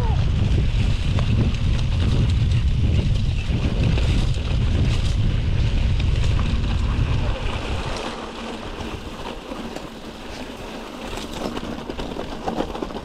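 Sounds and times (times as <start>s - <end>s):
heavy low rumble: 0.0s - 9.2s
mountain bike tyre noise: 0.0s - 13.0s
wind buffeting microphone: 0.0s - 13.0s.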